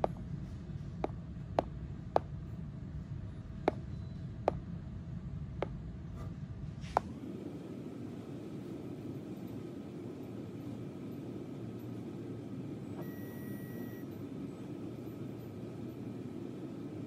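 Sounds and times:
steady low hum: 0.0 - 17.0
stylus tapping on touchscreen: 3.6 - 4.6.

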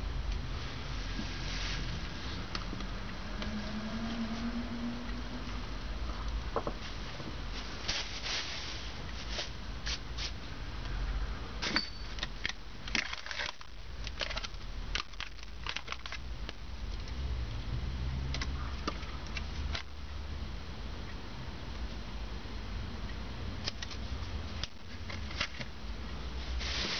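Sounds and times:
steady low hum: 0.0 - 26.9
plastic bags crinkling: 12.9 - 16.3.

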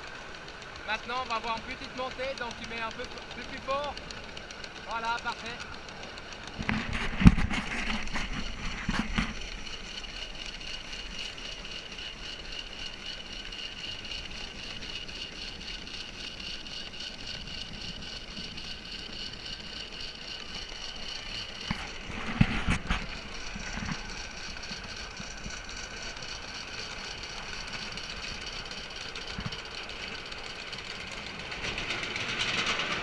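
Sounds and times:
steam locomotive chuffing: 0.0 - 33.0
steady high hiss: 8.4 - 33.0.

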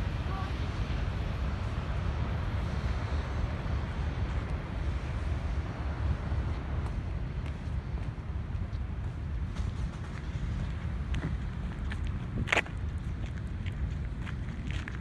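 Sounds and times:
wind buffeting microphone: 3.6 - 15.0.

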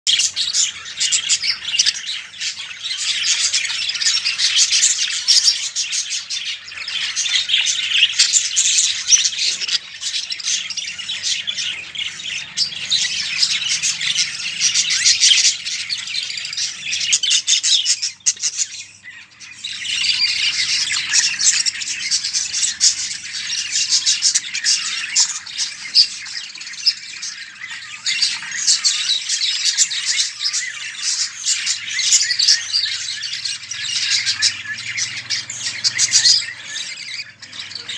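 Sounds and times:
budgerigars chattering and chirping: 0.1 - 37.9.

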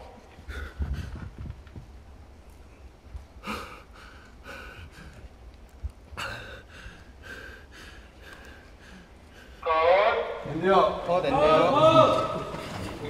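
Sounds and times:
quick heavy breathing: 0.2 - 1.8, 3.2 - 9.6.

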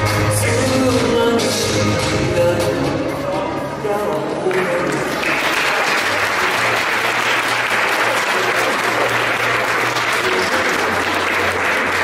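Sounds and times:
dance music with bass line: 0.0 - 5.1
audience clapping: 4.5 - 12.0.

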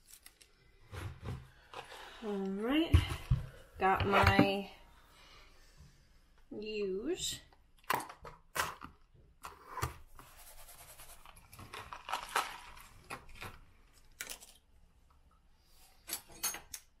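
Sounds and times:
scratchy rustling: 10.2 - 11.4.

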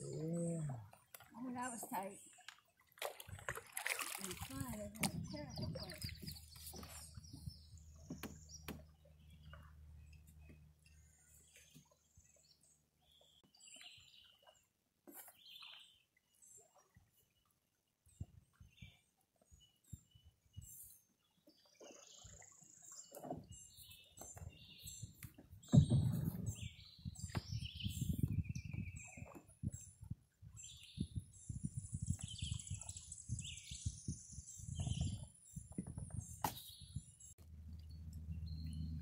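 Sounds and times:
birds chirping: 0.0 - 2.5, 4.3 - 14.5, 18.6 - 39.0
dull low thumps: 25.5 - 29.0
low rumble: 37.4 - 39.0.

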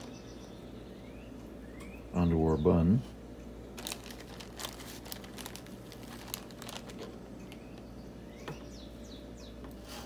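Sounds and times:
plastic bag crinkling: 3.8 - 7.8.

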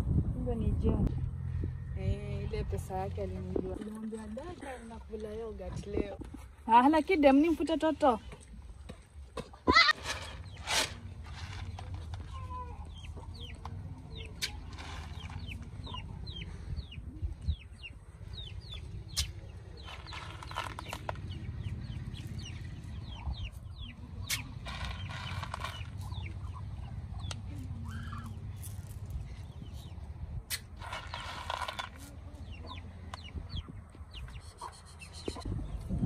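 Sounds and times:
low steady rumble: 0.0 - 6.8
chicks peeping: 12.8 - 28.4, 32.3 - 36.0.

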